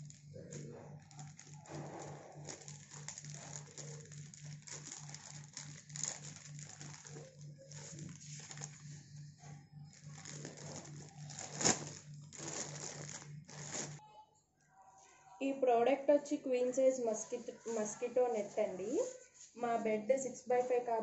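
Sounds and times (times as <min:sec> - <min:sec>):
plastic mailer bag crinkling: 0:00.0 - 0:14.0.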